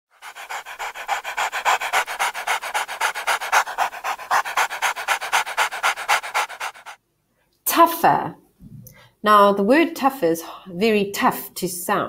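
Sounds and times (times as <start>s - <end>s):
marker scribbling: 0.1s - 7.0s.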